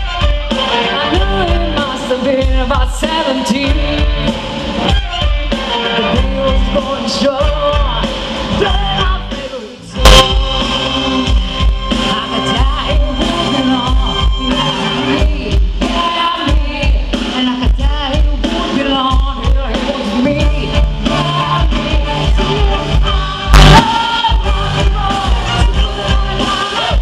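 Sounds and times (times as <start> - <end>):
rock band with orchestra: 0.0 - 27.0
woman singing lead: 0.5 - 27.0
backing singers: 20.0 - 27.0
sudden loud hit: 23.5 - 23.9.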